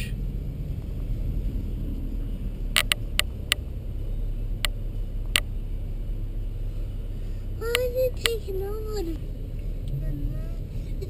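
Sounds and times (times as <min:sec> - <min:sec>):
car cabin rumble: 0:00.0 - 0:11.0
sharp clicks: 0:02.7 - 0:03.7.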